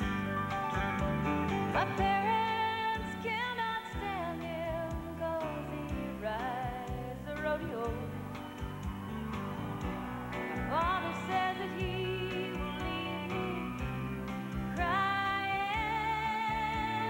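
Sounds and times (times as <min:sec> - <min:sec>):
country band playing: 0:00.0 - 0:17.0
woman singing: 0:01.7 - 0:08.5, 0:10.6 - 0:17.0.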